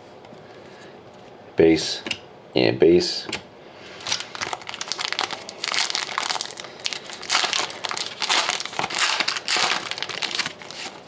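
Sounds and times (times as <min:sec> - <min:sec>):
foil wrapper crinkling: 0:04.0 - 0:11.0.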